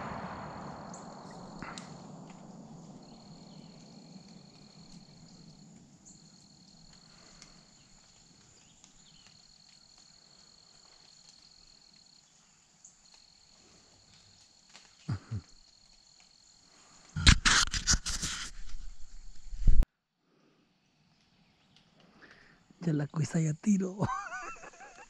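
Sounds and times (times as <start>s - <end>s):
low thumps: 0.0s - 3.8s
insects trilling: 0.0s - 17.2s, 21.4s - 25.0s.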